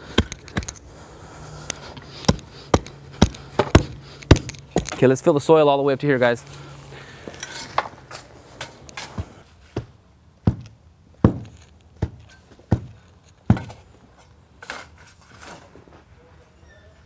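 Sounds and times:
hand tamper thudding on soil: 2.0s - 5.0s
soil shoveled and dumped: 6.6s - 10.0s, 11.5s - 16.1s.

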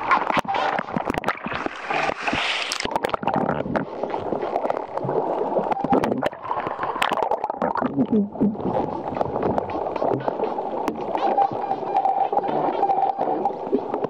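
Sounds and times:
sharp clicks and pops: 0.0s - 11.2s
seawater sloshing and gurgling: 0.0s - 14.0s.

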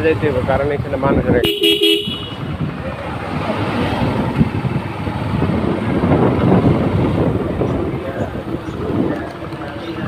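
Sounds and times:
motorcycle engine: 0.0s - 10.0s
road noise: 0.0s - 10.0s
wind rushing over microphone: 2.3s - 10.0s.

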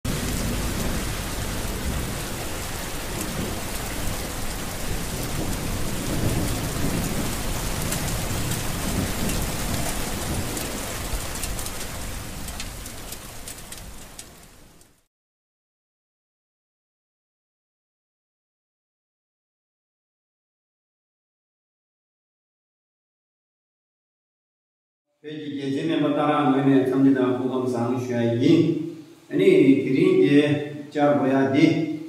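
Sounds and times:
low rolling thunder: 0.1s - 13.1s
steady rain: 0.1s - 15.1s, 25.5s - 32.0s.

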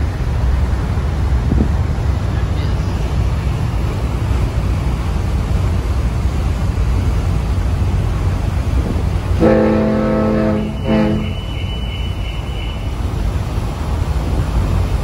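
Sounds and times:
wind and ferry rumble: 0.0s - 15.0s
ferry horn blast: 9.4s - 13.1s.

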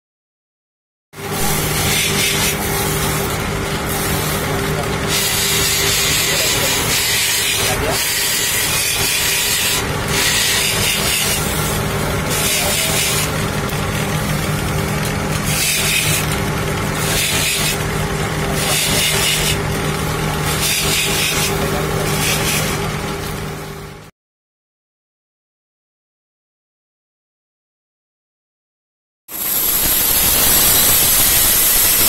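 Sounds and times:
grinding hiss: 1.2s - 22.9s, 29.3s - 32.0s
grinding wheel motor humming: 1.2s - 24.1s, 29.3s - 32.0s.

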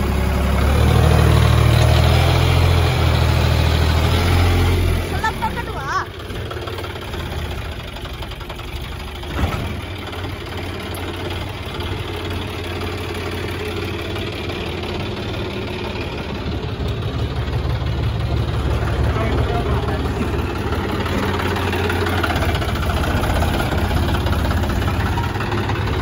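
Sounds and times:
tractor engine running: 0.0s - 26.0s
wheel churning in mud: 9.2s - 26.0s.

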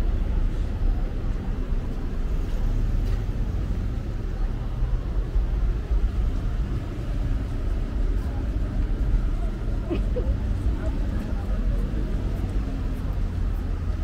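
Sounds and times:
city road traffic rumble: 0.0s - 14.0s.

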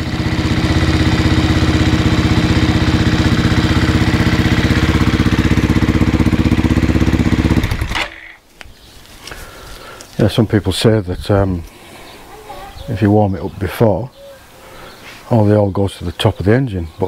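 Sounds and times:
motorcycle engine idling: 0.0s - 8.0s.

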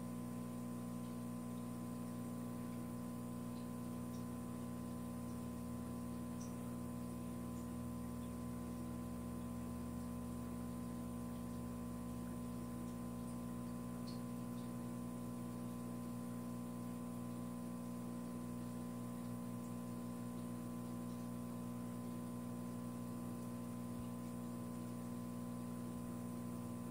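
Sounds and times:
low electrical hum: 0.0s - 26.9s.

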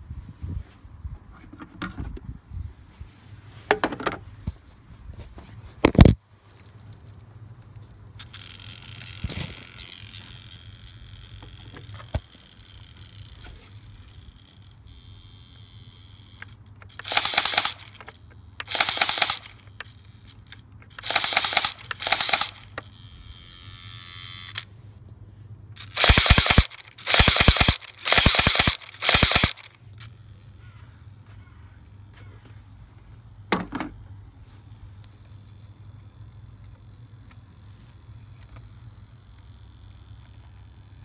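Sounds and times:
airsoft pistol rapid shots: 17.0s - 19.6s, 21.0s - 22.6s, 25.8s - 29.7s.

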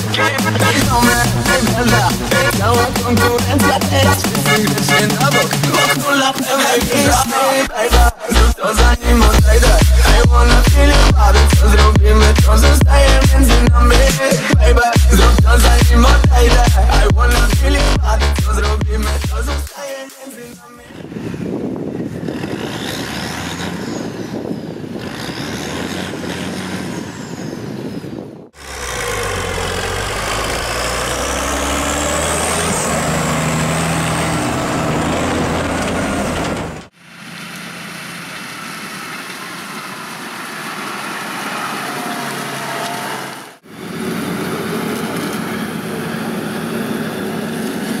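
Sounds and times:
combine harvester engine: 0.0s - 6.0s, 21.9s - 28.0s, 28.6s - 48.0s
high whine: 0.0s - 14.1s
tractor engine revving: 0.0s - 19.7s, 20.6s - 48.0s.

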